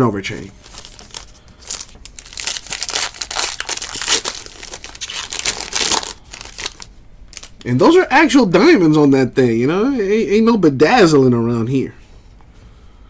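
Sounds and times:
foil wrapper crinkling and tearing: 0.6 - 7.7.

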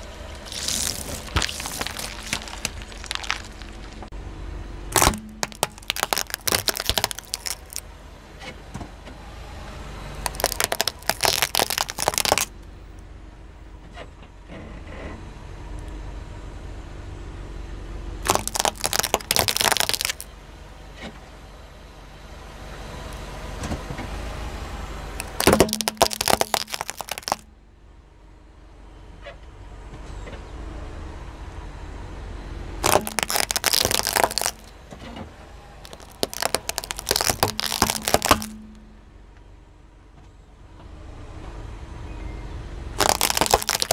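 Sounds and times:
plastic toys cracking under tyre: 0.0 - 4.1, 4.9 - 7.8, 10.2 - 12.5, 18.2 - 20.3, 25.2 - 27.4, 32.8 - 34.7, 35.8 - 38.8, 43.0 - 43.9
car rumble: 0.0 - 6.4.

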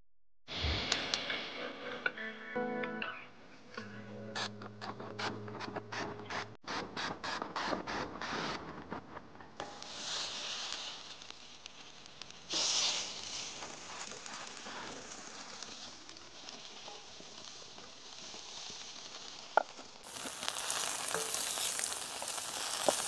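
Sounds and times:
vegetable scraping on hot griddle: 5.2 - 23.0
oil spray hissing: 12.5 - 15.6.

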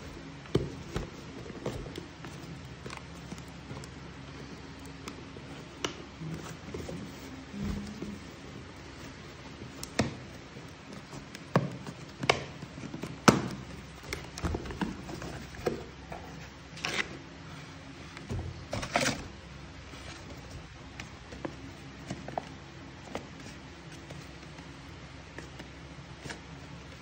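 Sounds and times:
cardboard rustling: 0.0 - 27.0.

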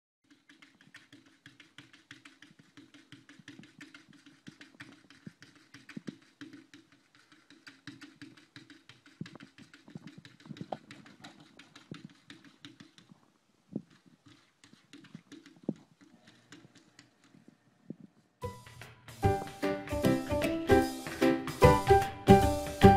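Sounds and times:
paws tapping on window glass: 0.2 - 18.2.

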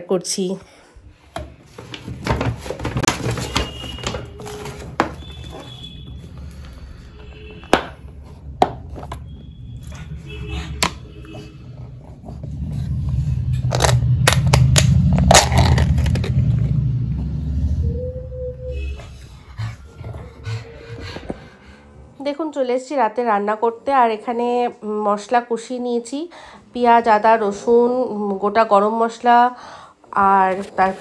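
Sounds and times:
paper bag rustling: 1.7 - 6.0
low rumble: 4.2 - 22.7.

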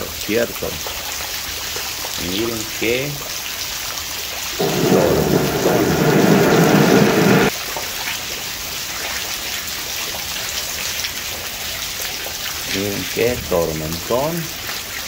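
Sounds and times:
heavy rain into puddles: 0.0 - 15.0
loud deep noise: 4.6 - 7.5.

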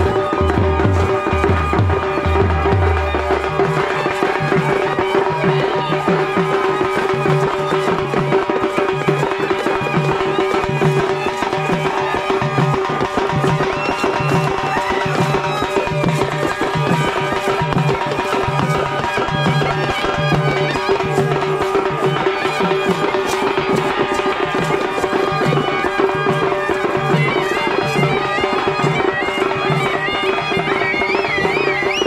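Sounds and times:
regular drum beat: 0.0 - 5.1
reed wind instrument melody: 0.0 - 32.0.

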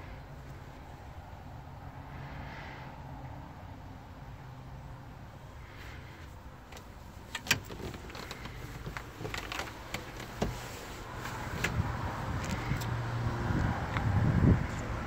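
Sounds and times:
clicks knocks and rustles: 6.7 - 11.8.

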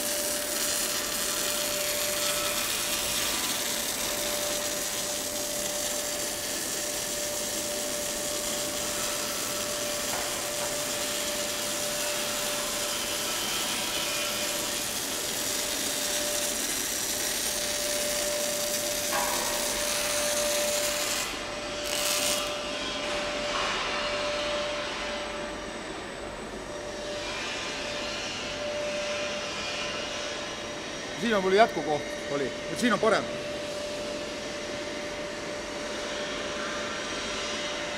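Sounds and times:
welding arc crackling and hissing: 0.0 - 23.2
workshop noise: 5.7 - 35.0.

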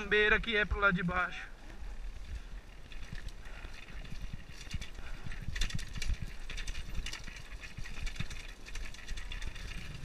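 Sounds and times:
motorcycle rattling on dirt: 2.0 - 10.0.

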